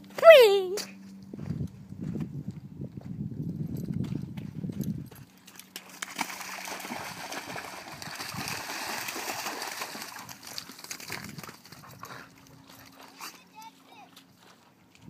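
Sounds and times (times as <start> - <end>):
water splashing and sloshing: 5.5 - 11.8.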